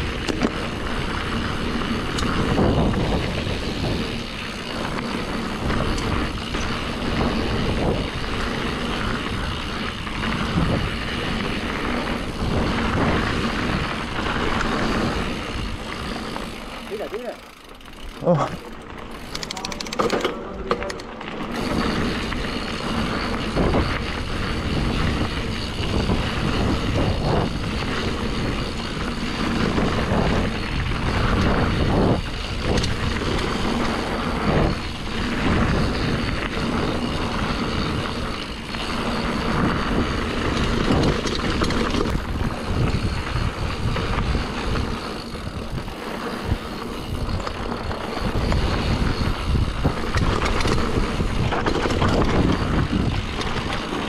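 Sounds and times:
wind rushing over microphone: 0.0s - 17.0s, 21.5s - 54.0s
bike rattling and knocking: 0.0s - 54.0s
bike tyre noise on dirt: 0.0s - 54.0s.

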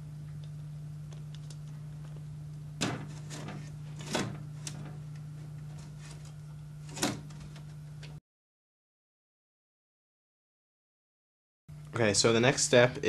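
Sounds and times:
low hum: 0.0s - 8.2s.

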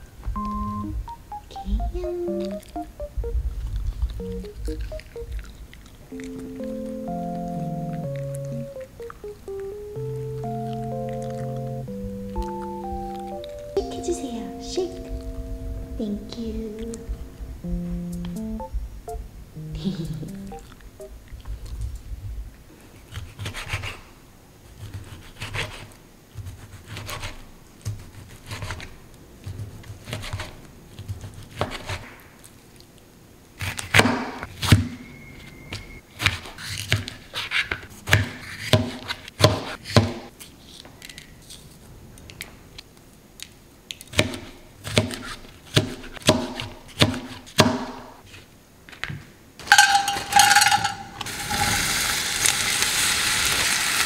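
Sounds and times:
knife chopping on cutting board: 36.2s - 40.2s, 44.2s - 48.0s.

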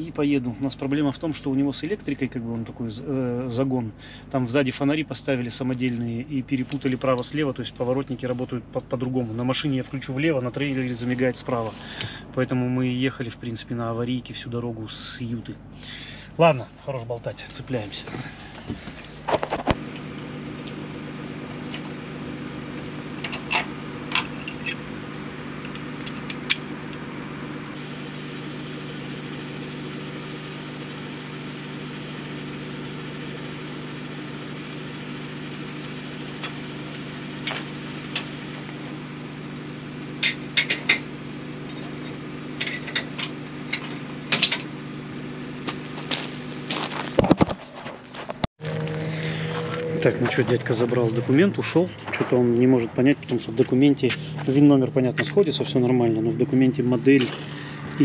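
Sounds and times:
truck engine idling: 17.6s - 47.2s, 48.3s - 58.0s.

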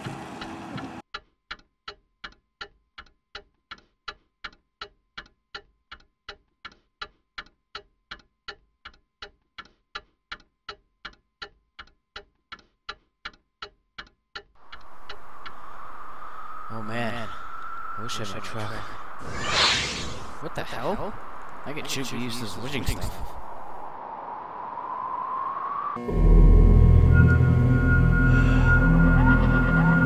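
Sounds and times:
clock ticking: 1.1s - 15.7s
steady rushing noise: 14.6s - 26.0s.

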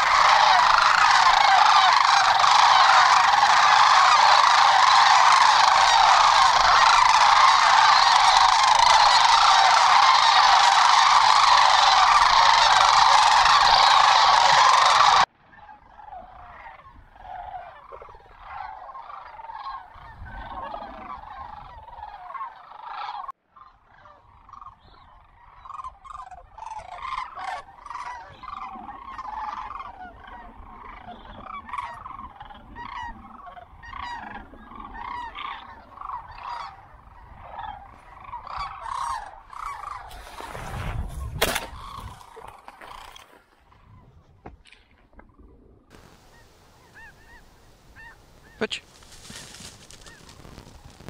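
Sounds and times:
cranes calling: 0.0s - 51.0s.

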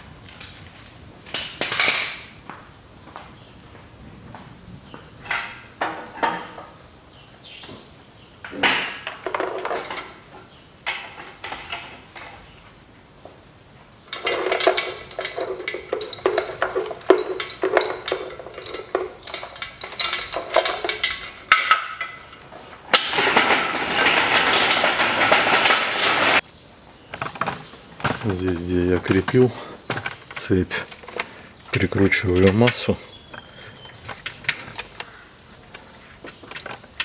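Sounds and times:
chain clinking and rattling: 9.2s - 10.2s, 14.1s - 26.4s.

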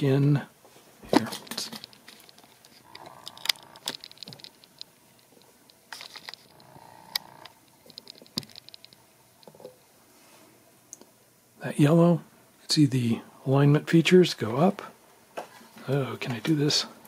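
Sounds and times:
plastic wire connectors clicking: 1.3s - 9.6s.

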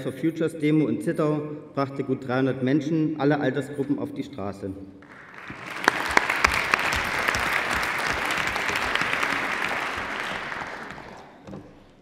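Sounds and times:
audience applauding: 5.0s - 11.5s.

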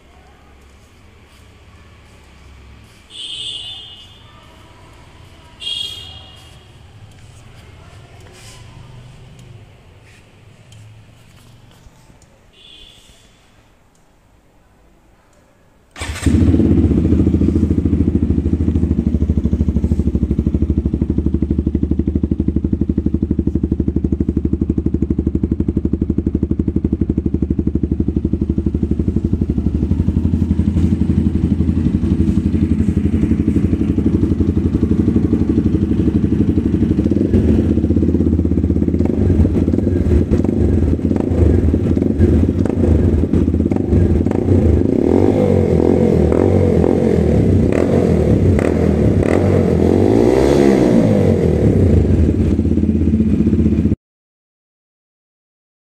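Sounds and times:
motorcycle engine starting and idling: 15.9s - 54.0s.

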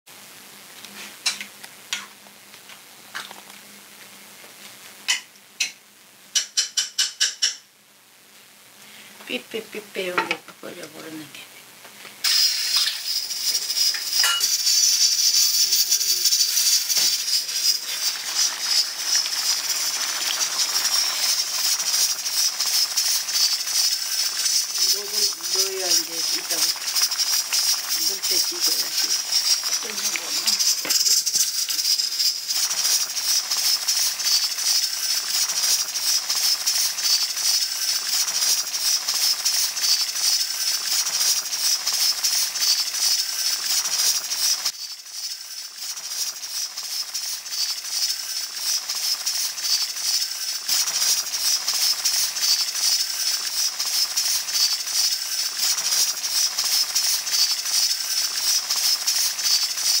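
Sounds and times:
stew boiling and bubbling: 12.2s - 60.0s.

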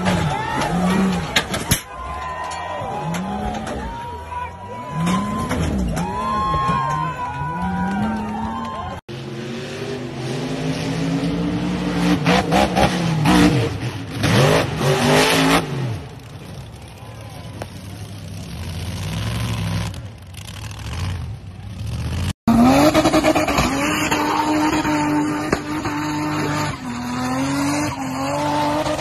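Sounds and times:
off-road engines revving: 0.0s - 29.0s
tires spinning: 0.0s - 29.0s.

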